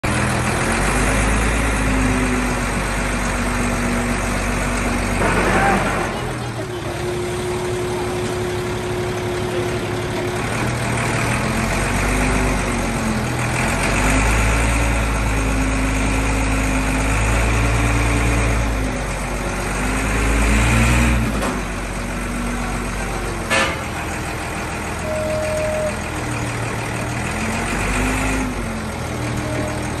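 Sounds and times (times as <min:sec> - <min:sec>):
forklift engine revving: 0:00.1 - 0:30.0
short beep: 0:25.0 - 0:26.0.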